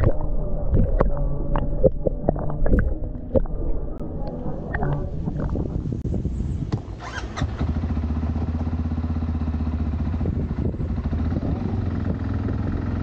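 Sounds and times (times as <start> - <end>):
quad bike engine idling: 7.4 - 13.0.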